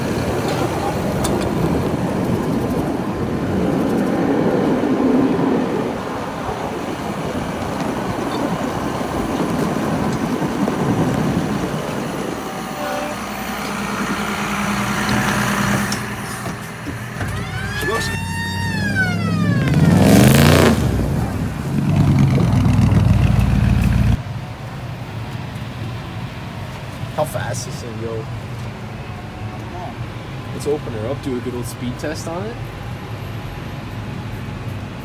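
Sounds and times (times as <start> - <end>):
tractor diesel engine running: 5.8 - 24.2
falling squeals: 17.1 - 20.2.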